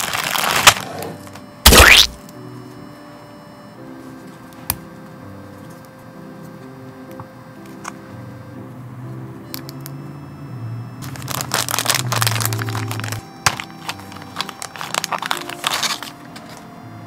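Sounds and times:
plastic packaging crinkling: 0.0s - 2.2s, 11.0s - 16.7s
soft background music: 0.0s - 17.0s.

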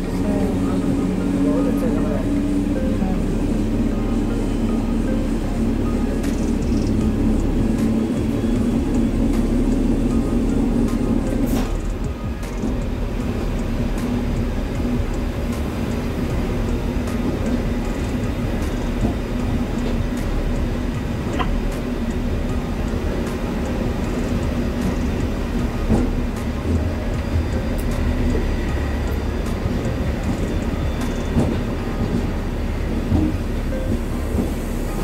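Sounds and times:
train rumbling with hum: 0.0s - 35.0s
wheels knocking and rattling on track: 0.0s - 35.0s.

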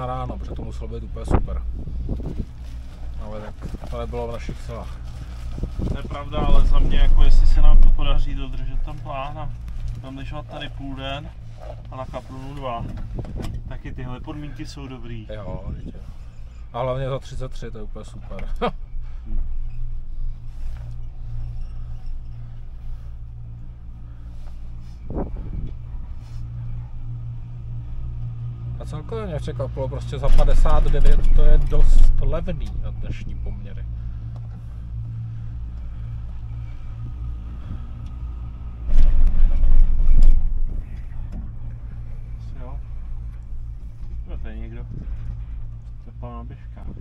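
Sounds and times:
chairlift hum and rumble: 0.0s - 47.0s
chairlift grip rumbling over sheaves: 1.5s - 14.3s.

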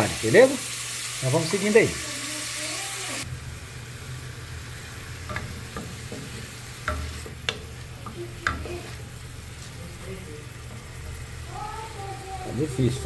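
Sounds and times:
onion sizzling in oil: 0.0s - 13.0s
utensil knocking and scraping pot: 5.2s - 8.7s.

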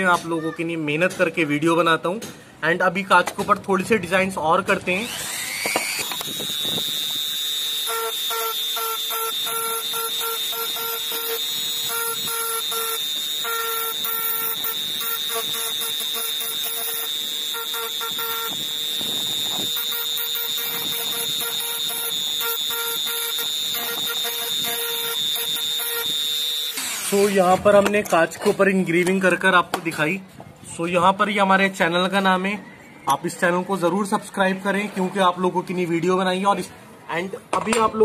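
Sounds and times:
rotary tool whining: 4.8s - 27.4s
bit grinding glass: 5.7s - 27.4s.

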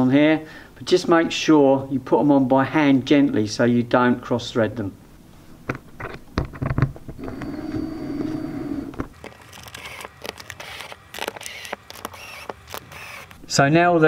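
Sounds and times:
steady hum: 7.2s - 13.5s
nuts threaded onto screws: 9.1s - 13.4s.

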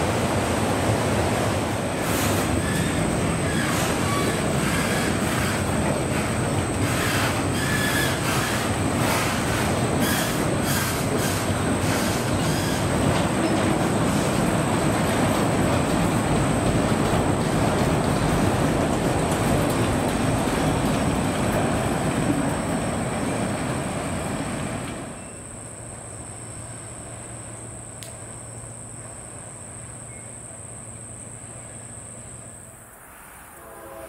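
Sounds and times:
freight train rolling on rails: 0.0s - 34.0s
train wheel squeals: 1.9s - 15.5s, 16.6s - 25.7s, 29.8s - 30.6s.

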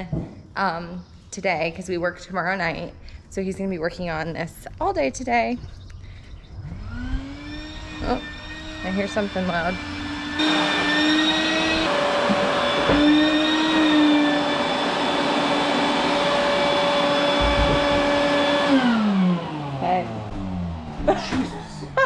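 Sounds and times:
vacuum cleaner motor whine: 6.6s - 21.4s.

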